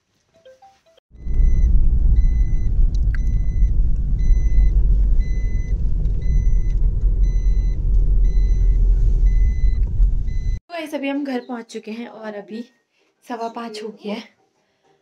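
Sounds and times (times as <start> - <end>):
road and engine rumble: 1.1 - 10.6
faint electronic beep: 1.2 - 10.6.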